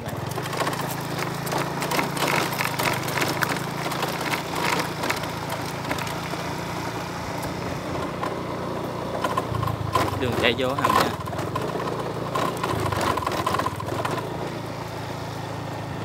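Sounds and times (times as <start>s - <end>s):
clicks and rattles: 0.0s - 6.4s, 9.2s - 14.3s
small motorbike engine running: 0.0s - 16.0s.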